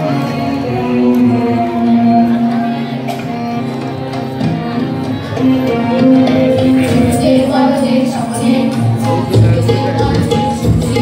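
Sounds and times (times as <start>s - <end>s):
held keyboard notes: 0.0s - 11.0s
repeated drum beats: 4.1s - 11.0s.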